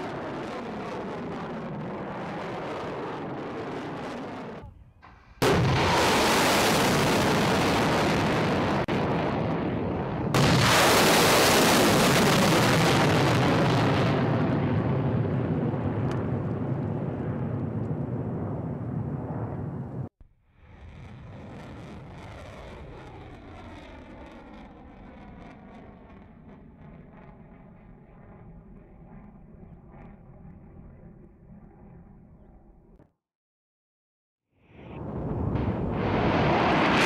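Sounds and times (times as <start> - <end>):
missile launch blast: 0.1 - 17.5, 34.9 - 37.0.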